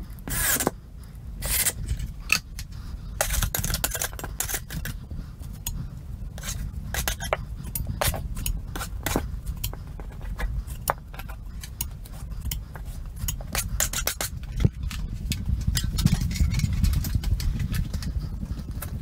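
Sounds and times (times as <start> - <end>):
steady low rumble: 0.0 - 19.0
tools clicking and tapping: 1.5 - 5.0, 6.4 - 18.1.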